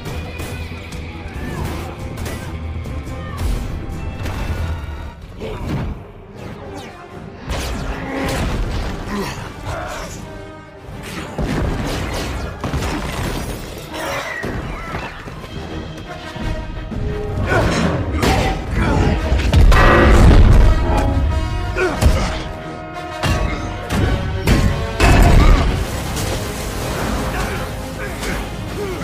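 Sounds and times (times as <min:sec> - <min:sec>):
dramatic music: 0:00.0 - 0:29.0
crashes and shattering: 0:11.3 - 0:14.8, 0:23.2 - 0:29.0.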